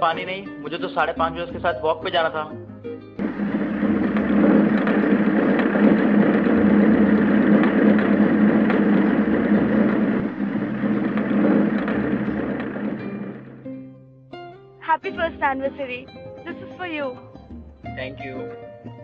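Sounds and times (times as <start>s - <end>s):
motorcycle engine running: 3.2s - 13.7s.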